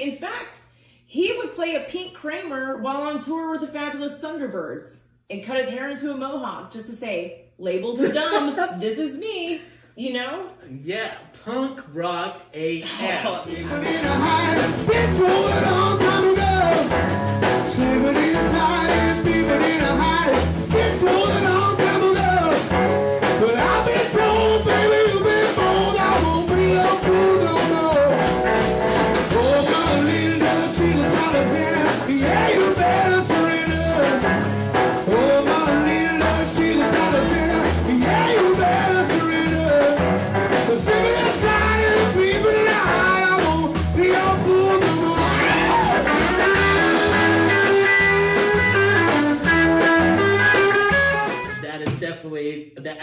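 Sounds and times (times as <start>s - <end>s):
man singing: 13.4s - 17.0s, 17.6s - 28.4s, 29.2s - 46.2s
steady drum beat: 13.4s - 52.2s
electric guitar: 13.5s - 51.6s.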